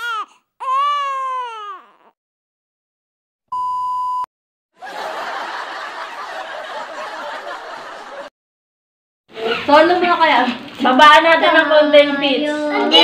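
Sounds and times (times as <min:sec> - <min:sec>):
electronic beep: 0:03.5 - 0:04.3
canned crowd laughter: 0:04.8 - 0:08.3.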